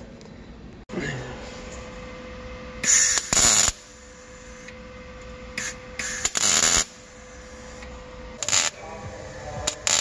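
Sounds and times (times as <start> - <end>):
mig welder welding sheet metal: 2.8 - 4.1, 5.6 - 7.0, 8.4 - 8.8, 9.8 - 10.0.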